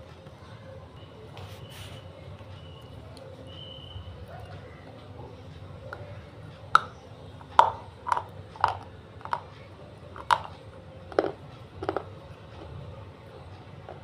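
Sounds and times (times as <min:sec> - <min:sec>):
clay crunching while chewed: 0:06.7 - 0:12.8.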